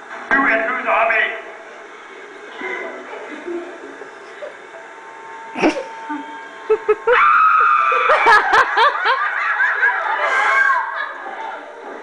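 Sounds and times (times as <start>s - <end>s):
quick short laughs: 5.6s - 7.1s.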